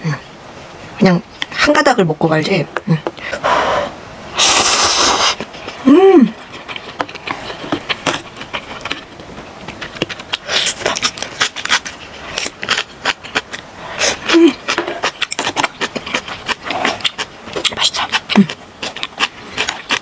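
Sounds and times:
wet chewing: 4.4s - 20.0s
person humming: 5.8s - 6.5s, 14.2s - 14.7s
lip smacks and mouth clicks: 6.4s - 20.0s.

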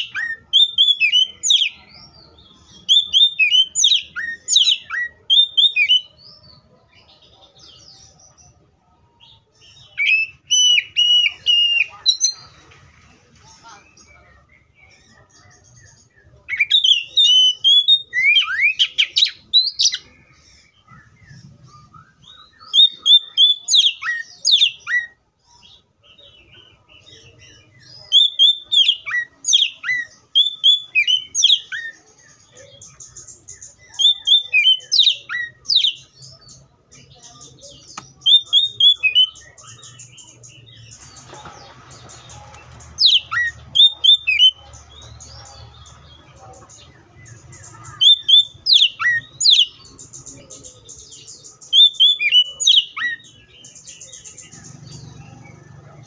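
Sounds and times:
bird singing whistled phrases: 0.0s - 1.8s, 2.9s - 6.1s, 9.8s - 12.4s, 20.8s - 25.2s, 28.0s - 32.0s, 38.2s - 40.2s, 47.9s - 49.9s, 51.7s - 53.3s.

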